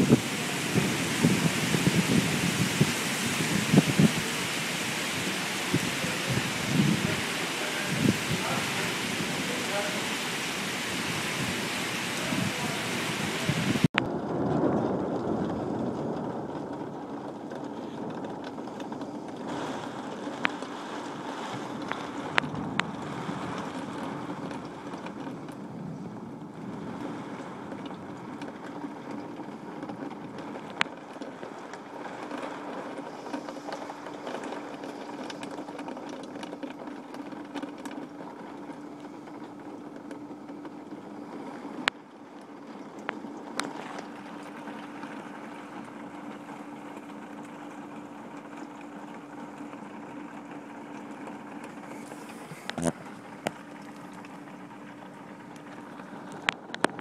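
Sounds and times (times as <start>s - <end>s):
hailstones striking: 0.0s - 25.8s
heavy rain pouring: 0.0s - 57.0s.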